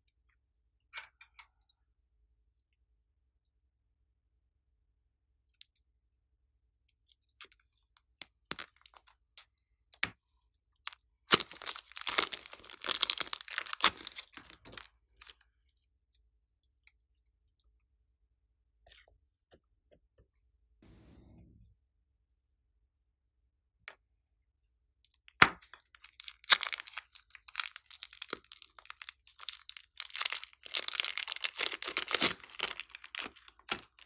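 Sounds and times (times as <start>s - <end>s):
plastic bag crinkling and tearing: 11.3s - 15.3s, 25.8s - 34.0s
slime squeezing and crackling: 11.3s - 15.3s, 25.8s - 34.0s
scissors snipping plastic: 26.3s - 34.0s.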